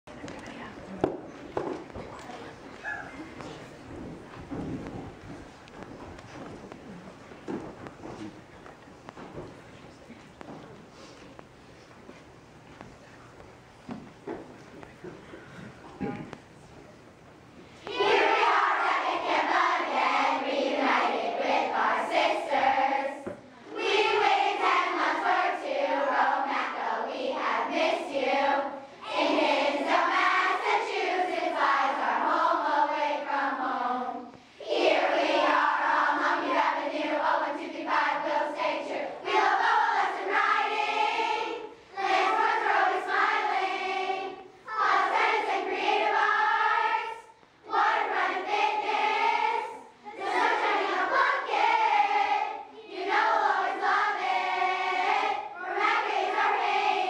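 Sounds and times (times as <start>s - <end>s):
girls singing together: 17.8s - 57.0s.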